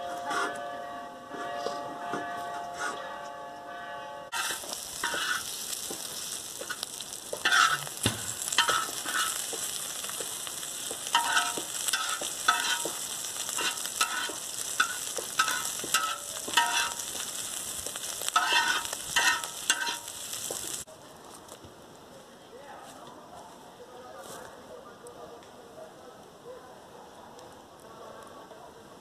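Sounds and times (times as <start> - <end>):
metal utensil scraping pan: 4.3 - 20.8
meat and onion sizzling: 4.3 - 21.6.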